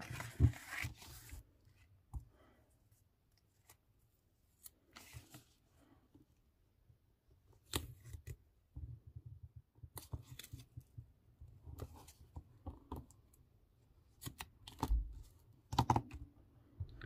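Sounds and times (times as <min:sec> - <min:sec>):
paper folding and creasing: 0:00.0 - 0:01.9, 0:03.4 - 0:05.6.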